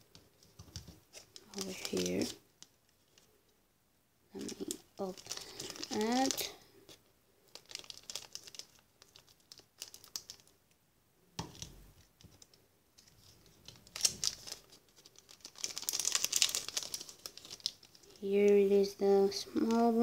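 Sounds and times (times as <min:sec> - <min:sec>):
plastic bag crinkling: 0:00.5 - 0:03.3, 0:04.3 - 0:06.9, 0:07.5 - 0:10.5, 0:11.4 - 0:18.6.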